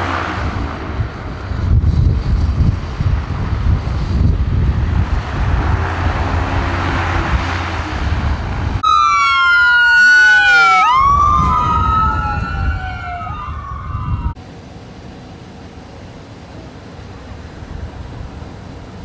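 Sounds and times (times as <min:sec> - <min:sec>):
wind buffeting microphone: 0:00.3 - 0:09.9, 0:10.7 - 0:14.4
ambulance siren wailing: 0:08.8 - 0:14.4.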